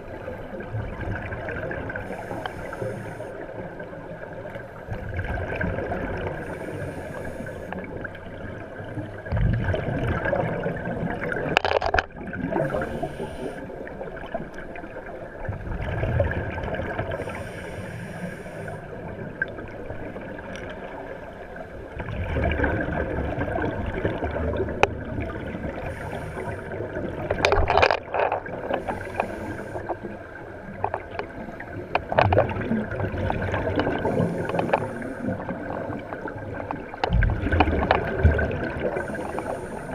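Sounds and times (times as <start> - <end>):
hissing regulator inhalations: 2.0 - 3.6, 6.4 - 7.8, 12.6 - 13.7, 17.1 - 18.9, 25.8 - 26.9, 28.7 - 30.1, 33.9 - 35.5, 38.9 - 39.9
gurgling exhaust bubbles: 31.0 - 39.7.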